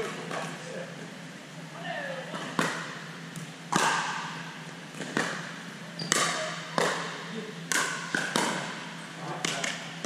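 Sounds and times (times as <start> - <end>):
ball bouncing on court: 2.4 - 10.0
paddles hitting plastic ball: 3.4 - 4.2, 6.1 - 7.1, 7.7 - 8.8, 9.4 - 9.9.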